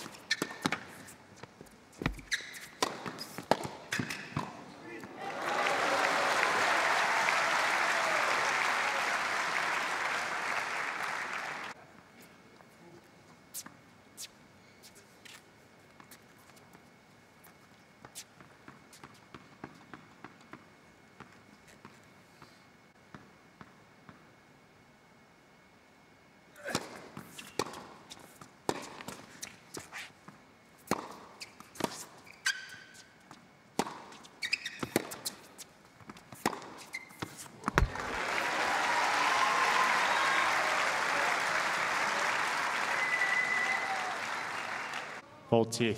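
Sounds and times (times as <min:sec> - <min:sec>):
shoe squeaks on court: 0:00.0 - 0:01.2, 0:02.0 - 0:04.4, 0:31.0 - 0:33.1, 0:33.9 - 0:35.7, 0:36.3 - 0:37.8
tennis ball bouncing: 0:02.0 - 0:04.6, 0:26.7 - 0:29.4, 0:30.8 - 0:32.1, 0:33.3 - 0:38.0
crowd applauding: 0:05.2 - 0:11.8, 0:37.8 - 0:45.2.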